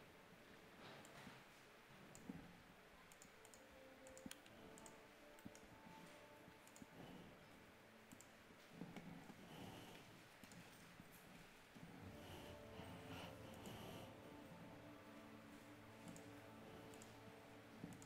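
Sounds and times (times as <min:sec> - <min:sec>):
computer mouse and keyboard clicks: 0:03.1 - 0:07.1, 0:08.1 - 0:10.9, 0:16.0 - 0:17.2, 0:17.8 - 0:18.0.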